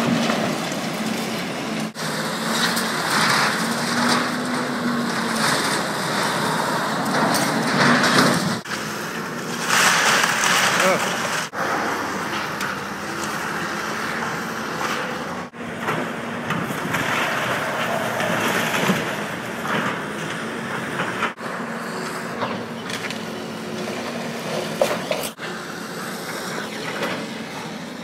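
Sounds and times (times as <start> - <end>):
excavator diesel engine: 0.0 - 28.0
debris clattering: 2.1 - 11.6
timber cracking and splintering: 9.4 - 11.6.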